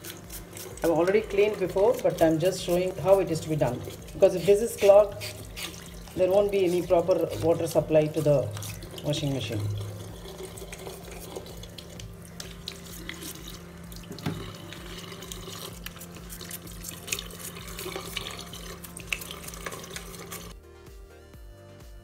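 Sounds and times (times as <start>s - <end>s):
tap water running into basin: 0.0s - 20.6s
toothbrush scrubbing: 0.0s - 20.6s.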